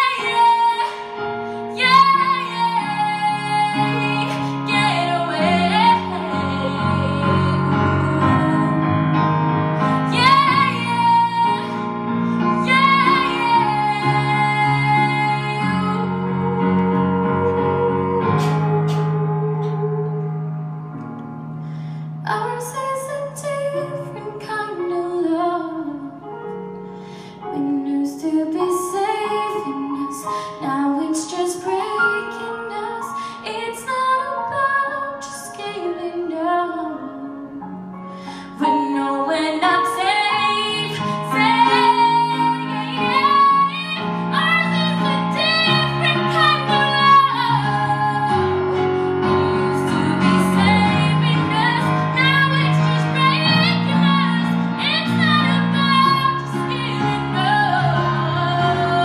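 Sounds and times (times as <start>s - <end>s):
woman singing into microphone: 0.0s - 9.2s, 9.8s - 20.4s, 22.2s - 26.3s, 27.4s - 37.7s, 38.3s - 59.0s
keyboard chords: 0.0s - 59.0s.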